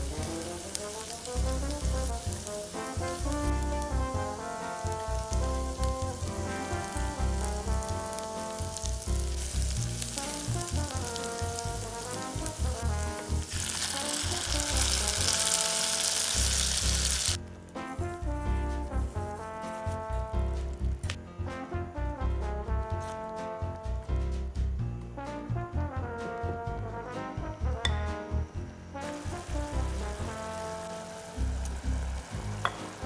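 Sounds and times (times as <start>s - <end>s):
garlic sizzling in hot oil: 0.0s - 17.4s, 29.0s - 33.0s
tomato puree pouring: 0.0s - 17.4s
background music: 0.0s - 33.0s.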